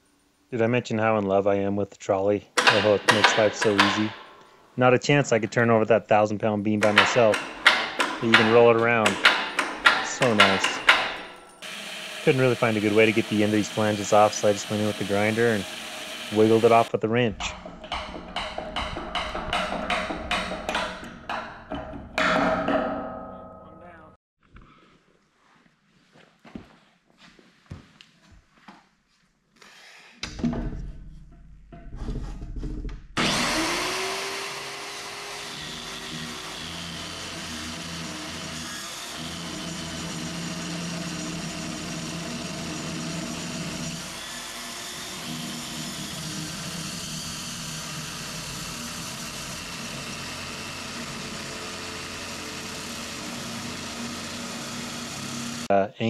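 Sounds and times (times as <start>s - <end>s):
circular saw cutting steel: 2.6s - 4.3s, 6.8s - 16.9s, 33.2s - 55.7s
handling knocks: 2.6s - 4.4s, 6.8s - 11.5s.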